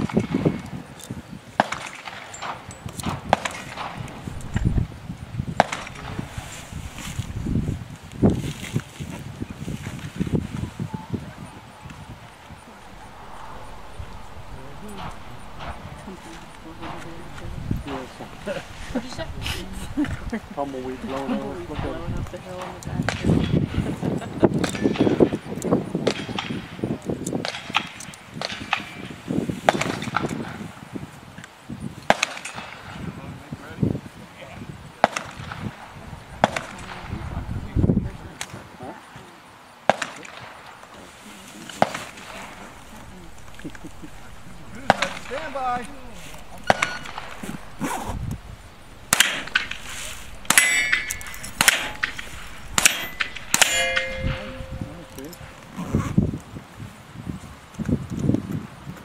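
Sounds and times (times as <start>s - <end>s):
loud crack: 1.6s - 8.4s, 12.2s - 23.2s, 35.1s - 38.5s, 41.6s - 55.9s
steel targets clanging: 41.8s - 47.8s, 48.6s - 55.8s.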